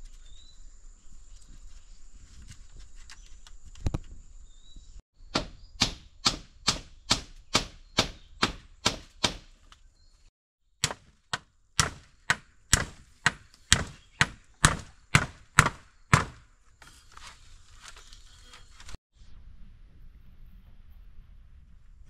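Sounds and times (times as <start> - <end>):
chopping blows: 5.3 - 9.6, 10.8 - 16.5.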